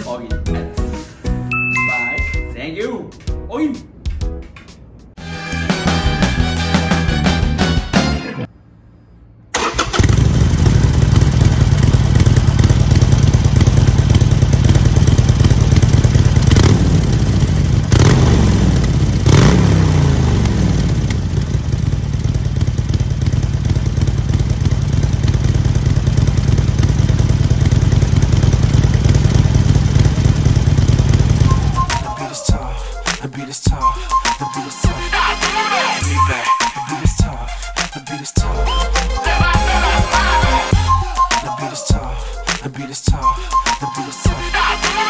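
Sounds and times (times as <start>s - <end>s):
motorcycle throttle blips: 9.0s - 32.2s
motorcycle engine idling: 9.6s - 32.0s.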